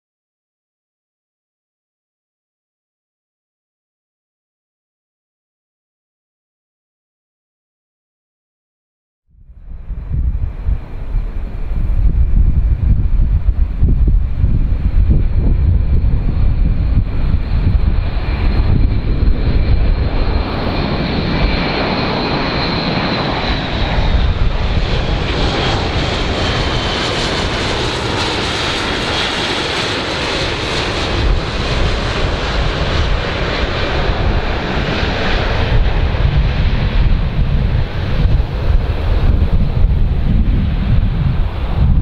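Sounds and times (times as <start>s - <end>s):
turboprop aircraft flying past: 9.4s - 42.0s.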